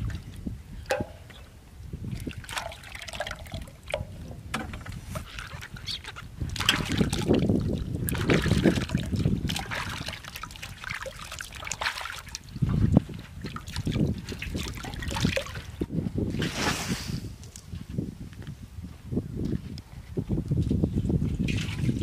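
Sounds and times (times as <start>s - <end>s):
water splashing in metal basin: 0.8s - 1.4s, 2.1s - 15.8s
water pouring from jug: 2.1s - 15.8s.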